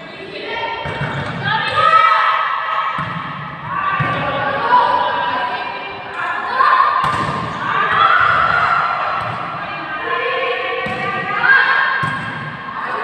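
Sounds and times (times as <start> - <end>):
volleyball hits: 2.9 - 4.6, 6.9 - 9.8, 10.7 - 13.0.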